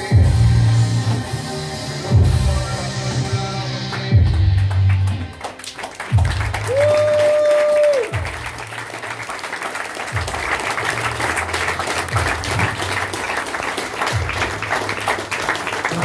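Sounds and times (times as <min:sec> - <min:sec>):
music with held bass notes: 0:00.0 - 0:05.4
crowd clapping and applauding: 0:03.2 - 0:16.0.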